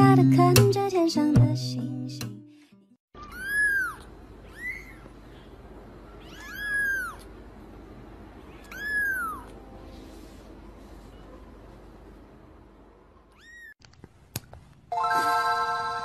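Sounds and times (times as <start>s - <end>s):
kitten meowing: 3.2s - 5.1s, 6.1s - 7.3s, 8.5s - 9.6s, 13.3s - 13.8s.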